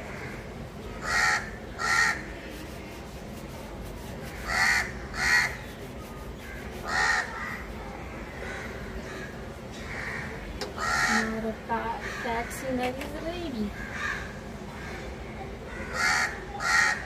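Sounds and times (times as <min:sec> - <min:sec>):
bird harsh calls: 0:00.0 - 0:02.3, 0:04.3 - 0:11.4.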